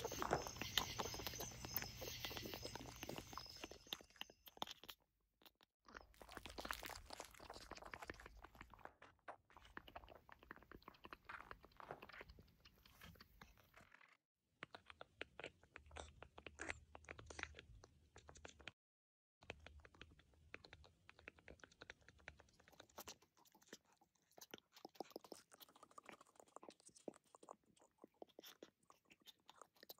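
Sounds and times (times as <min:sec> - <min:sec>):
squishy crunching and clicking: 0:00.0 - 0:14.0.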